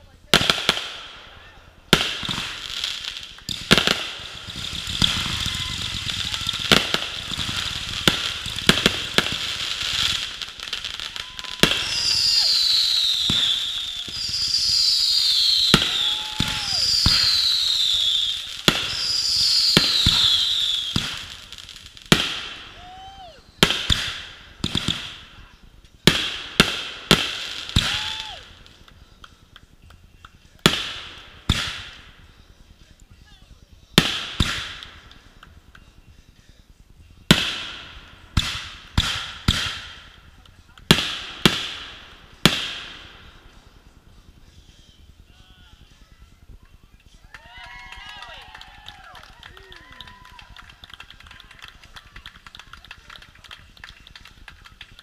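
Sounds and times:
fireworks falling whistles: 1.4s - 30.9s, 41.0s - 47.3s
fireworks thumps and bangs: 1.9s - 22.8s, 23.6s - 32.9s, 33.9s - 36.0s, 37.2s - 44.8s.

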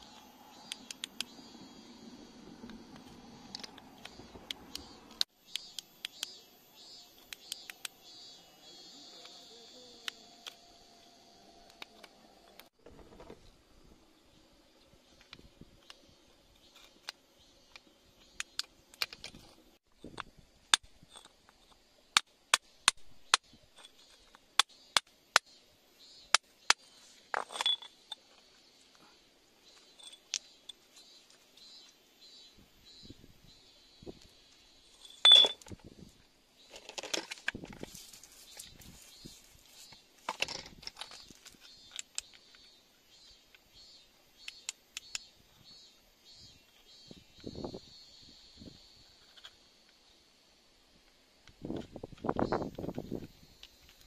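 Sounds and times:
faint high chirp: 3.4s - 12.6s, 27.5s - 28.2s, 29.0s - 35.7s
metal tool tapping on rock: 35.2s - 35.7s
scraping rustle: 36.6s - 41.7s.

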